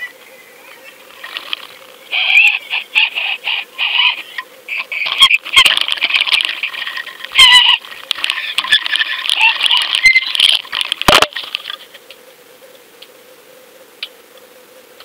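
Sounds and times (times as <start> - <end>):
small clicks and crackles: 0.2 - 2.1, 4.4 - 13.2.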